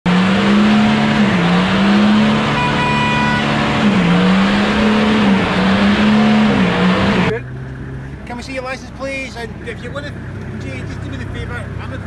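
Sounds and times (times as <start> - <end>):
vehicle engine droning: 0.1 - 12.0.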